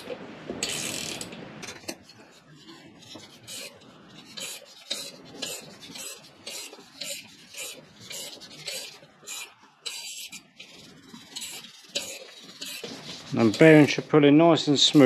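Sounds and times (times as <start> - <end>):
nut rasping and clicking on metal: 3.5 - 14.0.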